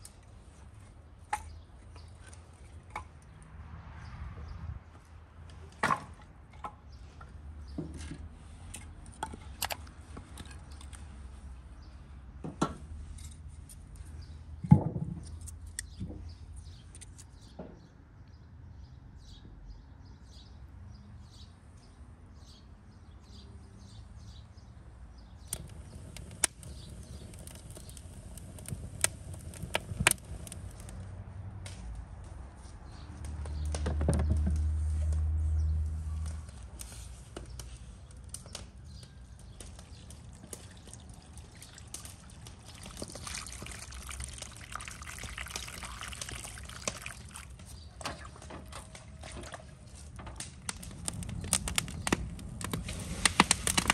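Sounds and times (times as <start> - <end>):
small birds chirping: 15.3 - 31.0, 32.8 - 49.0
firewood knocking: 25.5 - 31.0.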